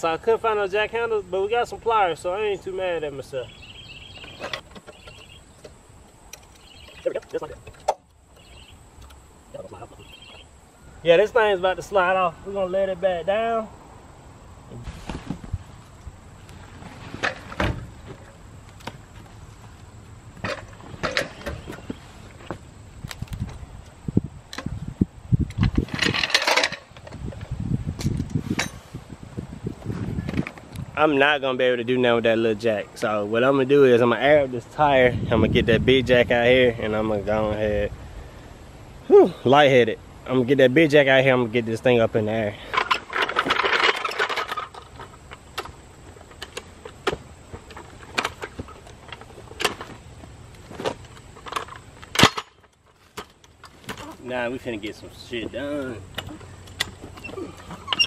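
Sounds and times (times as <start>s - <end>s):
metal clanks from floor jack: 28.4s - 28.9s.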